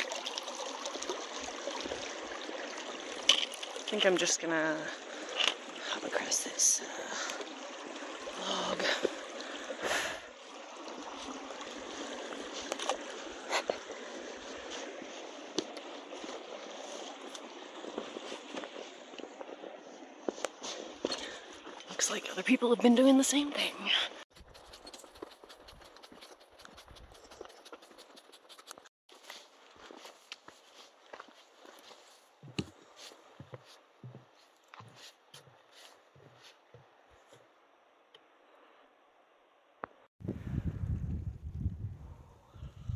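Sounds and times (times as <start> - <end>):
stream running over rocks: 0.0 - 34.0
footsteps on a log: 24.3 - 37.5.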